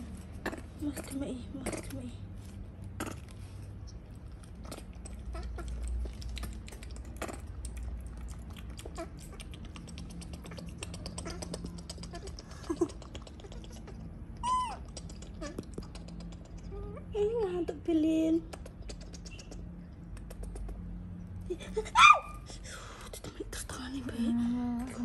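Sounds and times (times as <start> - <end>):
baby monkeys squeaking: 10.0 - 17.0.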